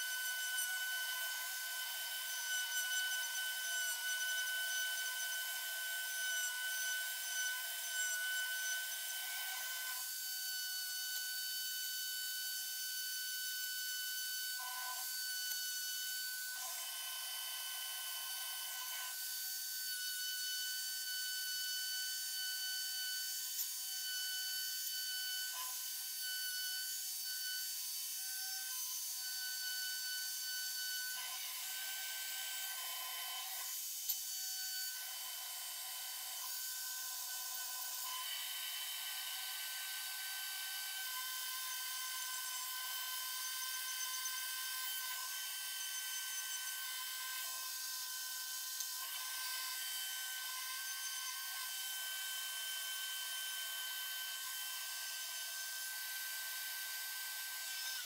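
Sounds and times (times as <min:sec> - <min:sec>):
rotary tool grinding metal: 0:00.0 - 0:58.0.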